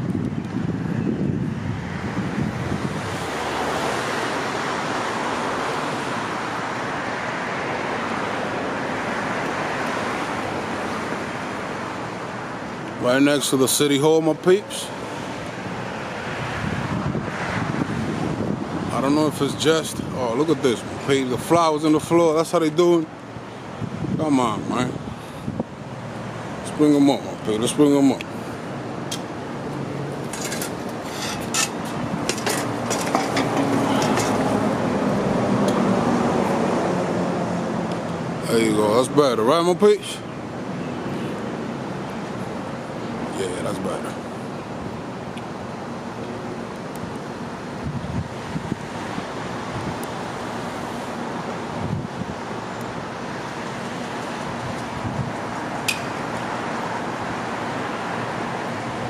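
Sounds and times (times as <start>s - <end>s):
distant traffic: 0.0s - 59.0s
wind: 0.0s - 59.0s
wire stand scraping on brick: 30.2s - 34.6s.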